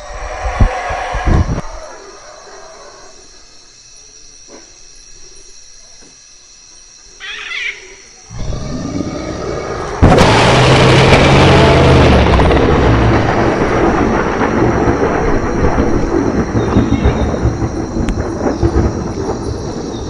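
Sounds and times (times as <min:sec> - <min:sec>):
jungle ambience: 0:00.0 - 0:20.0
animal cry: 0:07.2 - 0:11.0
dinosaur roar: 0:08.3 - 0:15.0
low rumble: 0:08.3 - 0:20.0
cinematic hit: 0:10.0 - 0:17.9.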